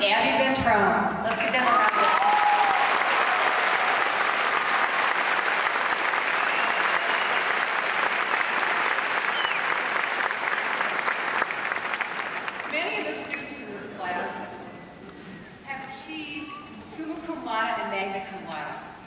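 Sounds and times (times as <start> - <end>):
audience applauding: 1.5 - 13.1.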